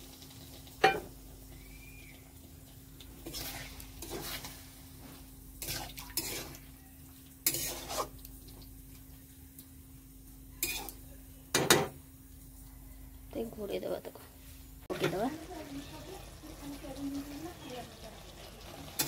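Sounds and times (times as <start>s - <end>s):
spatula scraping metal pan: 3.2s - 4.6s, 5.6s - 6.6s, 7.4s - 8.2s
faint steady hum: 8.2s - 19.0s.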